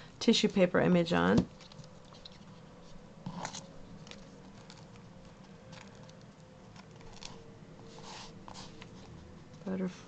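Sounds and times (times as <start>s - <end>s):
tissue paper rustling: 6.9s - 9.3s.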